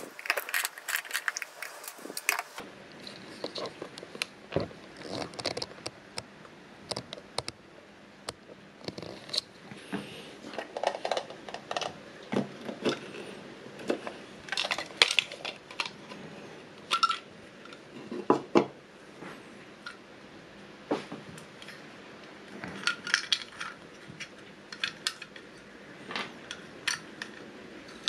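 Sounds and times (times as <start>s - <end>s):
candies clattering inside: 0.0s - 2.6s, 13.8s - 16.2s, 22.7s - 23.8s
plastic toy clicking and rattling: 10.6s - 12.0s, 13.9s - 16.1s, 16.9s - 17.8s, 22.7s - 25.6s.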